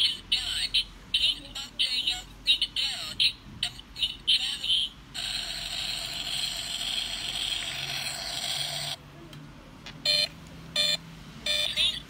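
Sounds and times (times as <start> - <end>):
electronic toy car engine noise: 3.7 - 9.0, 10.1 - 12.0
short buzzy beeps: 10.1 - 12.0.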